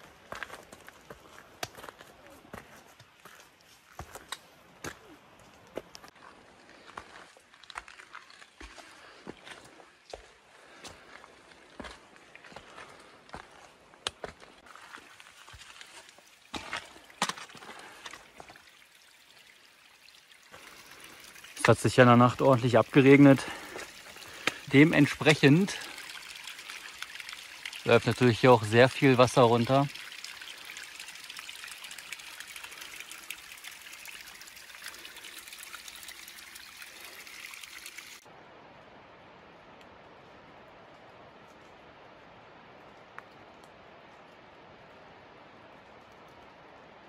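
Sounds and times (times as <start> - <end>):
footsteps on wet trail: 0.0 - 18.7, 20.5 - 29.1
trickle of running water: 14.3 - 38.3.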